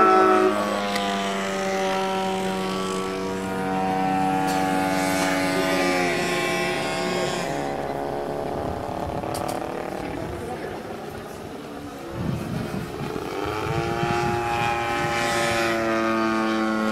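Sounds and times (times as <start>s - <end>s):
model airplane engine buzzing: 0.0s - 16.9s.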